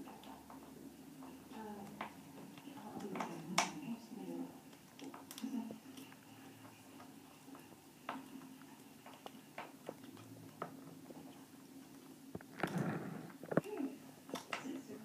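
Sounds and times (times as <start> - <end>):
ferret crunching bone: 4.6 - 14.7.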